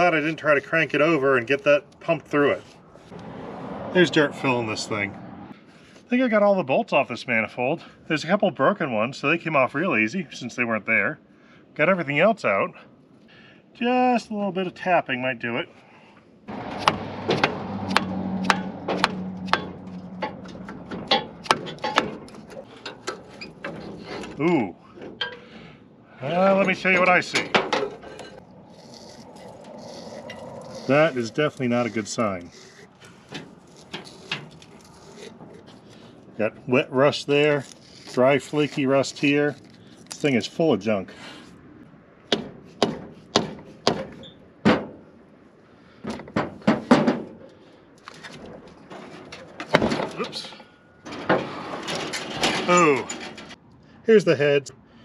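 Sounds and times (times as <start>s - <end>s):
hammer striking metal: 16.7s - 19.8s.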